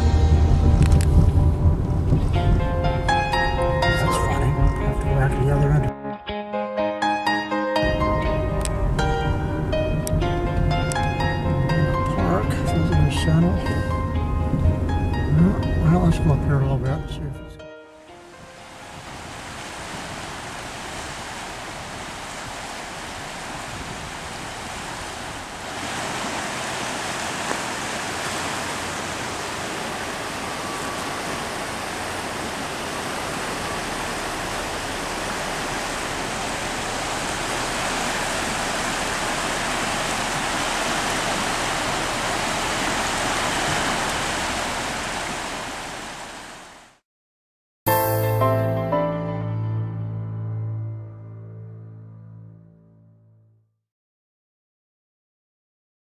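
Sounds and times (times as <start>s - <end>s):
creek water rushing: 18.2s - 47.0s.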